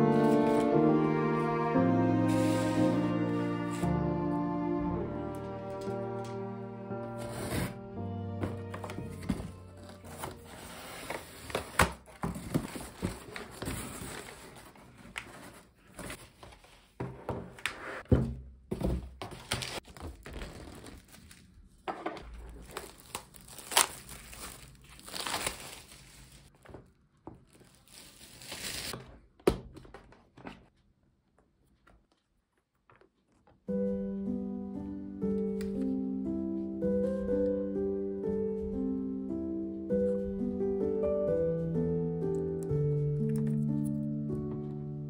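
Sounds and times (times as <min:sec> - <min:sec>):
plastic packaging crinkling and tearing: 0:19.4 - 0:29.0.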